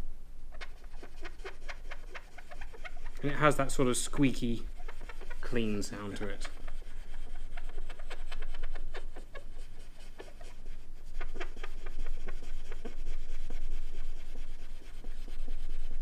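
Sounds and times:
swab squeaking on metal: 0.6s - 6.9s.

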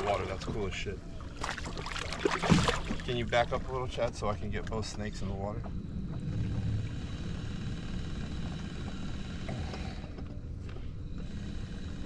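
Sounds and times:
electric boat motor running: 5.7s - 12.0s.

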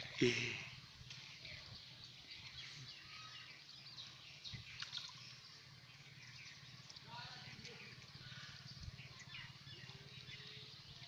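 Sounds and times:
faint bird chirps: 0.2s - 11.0s.

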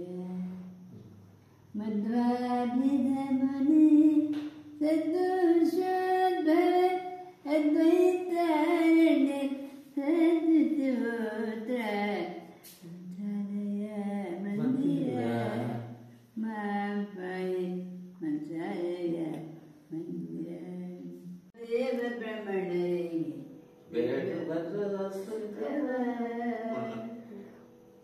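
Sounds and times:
elderly man singing unaccompanied: 12.8s - 17.6s, 23.9s - 27.4s.

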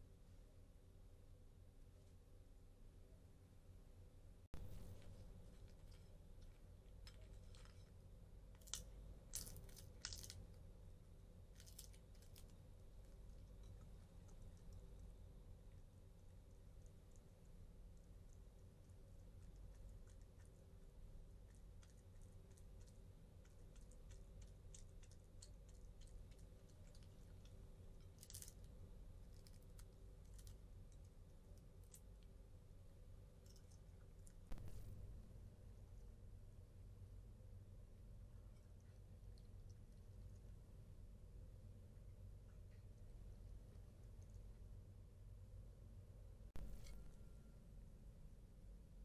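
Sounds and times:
faint low hum: 0.0s - 49.0s
raccoon chewing crunches: 18.2s - 32.1s.

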